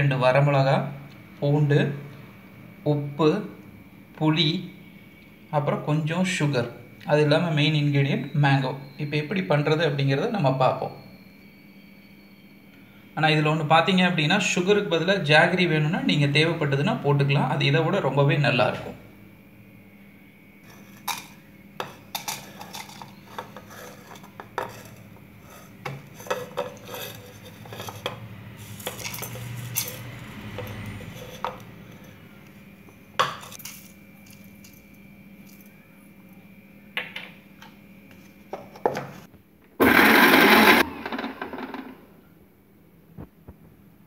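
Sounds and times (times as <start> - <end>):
mixer grinder burst: 39.8 - 42.0.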